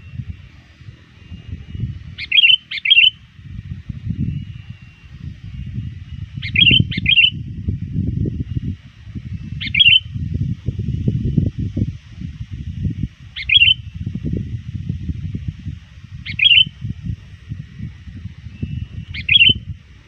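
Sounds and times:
low rumbling noise: 0.0s - 20.0s
bulbul chirping calls: 1.3s - 3.3s, 4.3s - 7.4s, 9.5s - 10.2s, 13.3s - 14.0s, 16.2s - 16.8s, 18.5s - 19.7s.

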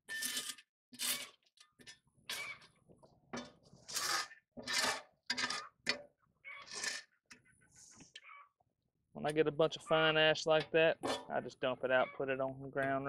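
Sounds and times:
metal tool scraping coals: 0.1s - 2.8s, 3.4s - 8.2s, 10.6s - 11.4s.

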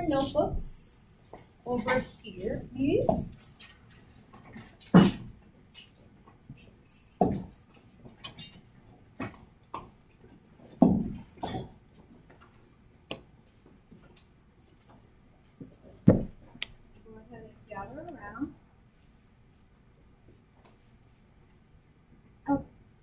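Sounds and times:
knocks and thumps of chairs: 1.4s - 3.5s, 4.3s - 5.5s, 7.2s - 8.4s, 10.6s - 11.8s, 15.9s - 16.6s.

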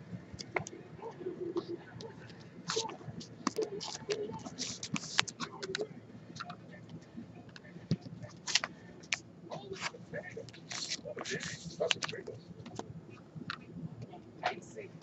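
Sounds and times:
trading cards clicking and rustling: 1.5s - 12.9s.

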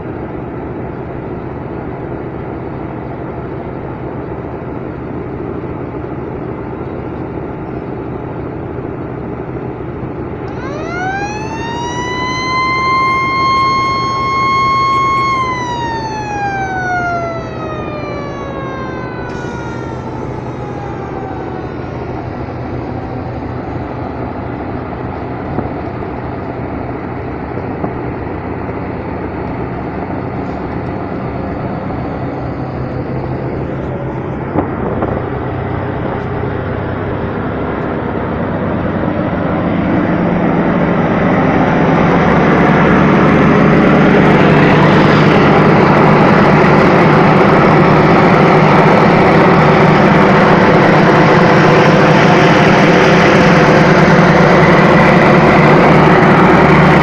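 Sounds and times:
ship engines humming: 0.0s - 57.0s
broad rushing noise: 10.5s - 25.6s.

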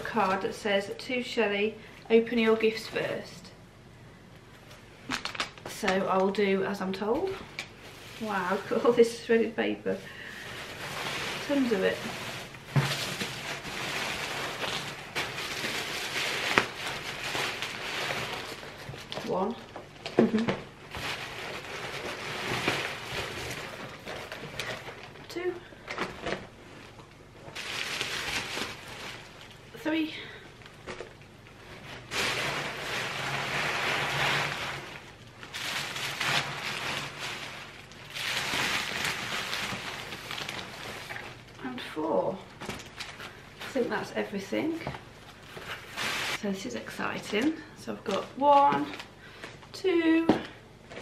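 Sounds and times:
shredded paper rustling: 7.2s - 9.3s, 9.9s - 41.9s, 44.8s - 46.5s.

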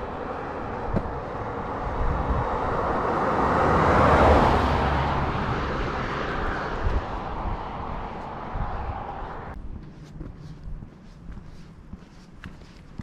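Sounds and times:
car passing by: 0.0s - 9.6s.

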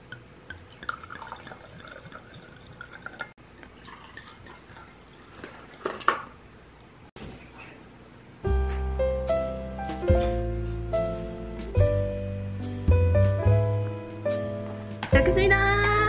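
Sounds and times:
liquid dripping: 0.0s - 6.1s.

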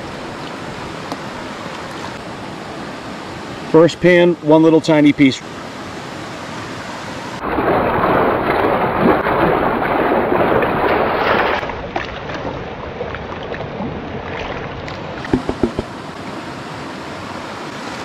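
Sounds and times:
stream rushing: 0.0s - 18.0s
water sloshing and splashing: 0.3s - 2.2s, 7.4s - 16.1s
short knocks: 15.2s - 15.9s.

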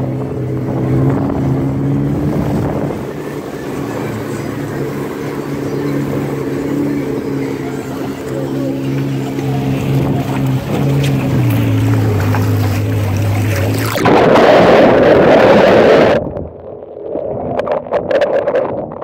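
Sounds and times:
watercraft engine humming: 0.0s - 19.0s
loud rushing noise: 9.5s - 16.4s.

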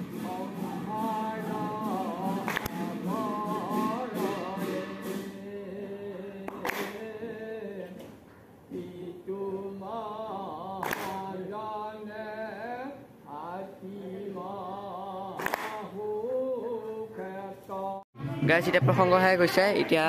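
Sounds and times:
group chanting in unison: 0.0s - 5.5s, 8.7s - 12.1s, 13.3s - 16.0s
sharp claps: 1.9s - 4.8s, 6.4s - 7.1s, 10.8s - 11.3s, 15.3s - 15.9s.

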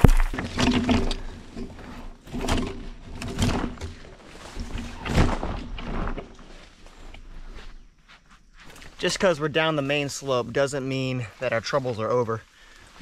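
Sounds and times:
footsteps on dirt and rock: 0.0s - 2.2s, 4.0s - 9.5s
leaves and branches rustling: 0.0s - 13.0s.

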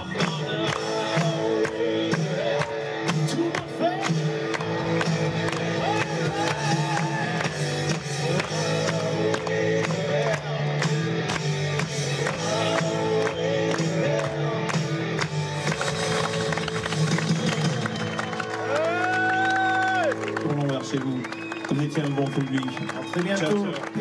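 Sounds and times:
person singing: 0.0s - 11.1s, 11.7s - 15.0s
audience clapping along: 0.0s - 24.0s
live band playing: 0.0s - 24.0s.

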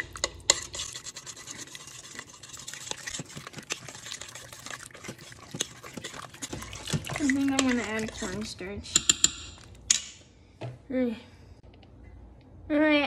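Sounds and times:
spoon scraping metal pot: 0.0s - 9.8s.

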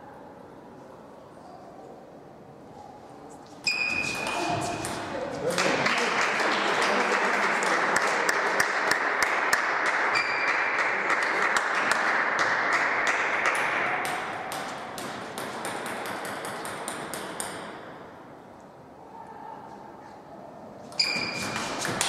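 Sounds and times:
table tennis ball bouncing: 3.7s - 5.3s, 13.0s - 17.8s, 21.0s - 22.0s.

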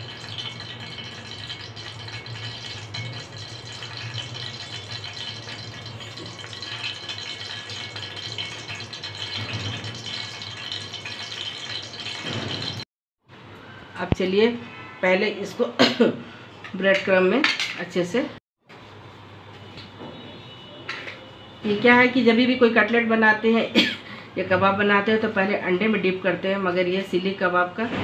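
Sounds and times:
mechanical hum with rattle: 0.0s - 15.0s, 18.7s - 26.0s.

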